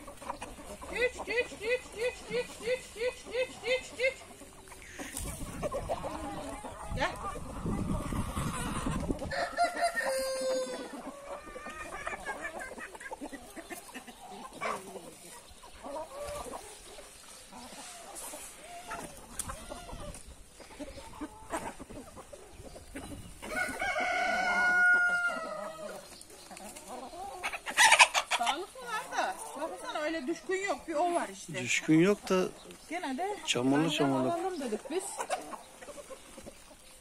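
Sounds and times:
hens clucking: 0.0s - 37.0s
rooster crowing: 9.3s - 10.9s, 23.5s - 25.6s.

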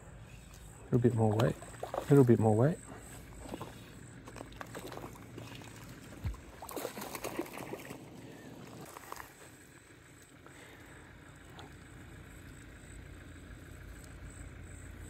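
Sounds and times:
fish splashing at surface: 1.3s - 2.2s, 3.4s - 9.3s.

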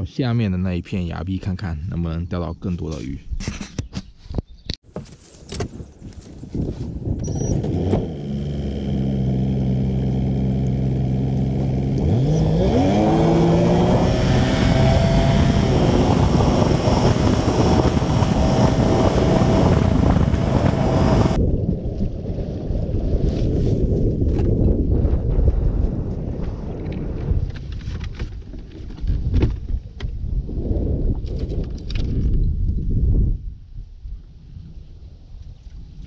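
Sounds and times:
outboard motor running: 7.5s - 21.4s
rush of wind and water: 12.0s - 28.2s.

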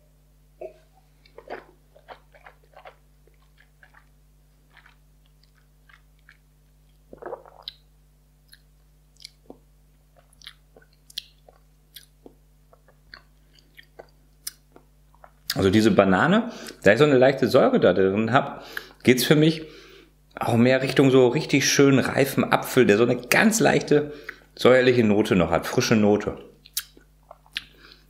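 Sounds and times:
faint electrical hum: 0.0s - 28.0s
man sipping and mouth smacking: 0.6s - 7.8s, 8.5s - 15.4s, 26.6s - 28.0s.

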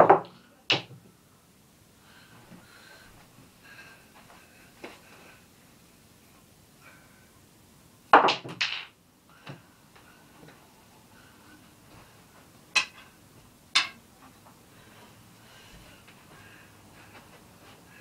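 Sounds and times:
snooker balls clicking: 8.2s - 9.0s, 12.8s - 13.1s, 13.8s - 14.0s.

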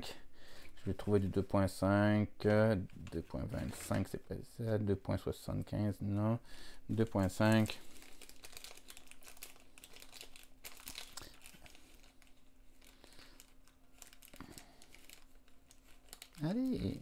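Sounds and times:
faint steady hum: 0.0s - 17.0s
plastic bags rustling: 2.8s - 4.2s, 6.9s - 17.0s.

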